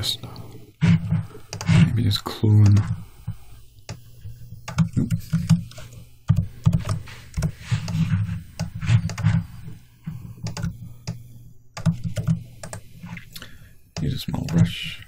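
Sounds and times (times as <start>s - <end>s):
keyboard and mouse clicking: 4.6s - 8.0s, 8.6s - 9.4s, 10.4s - 12.9s.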